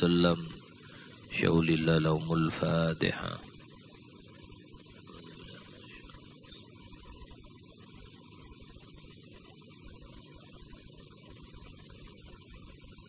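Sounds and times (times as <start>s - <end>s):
low electrical hum: 0.0s - 13.0s
microphone hiss: 0.0s - 13.0s.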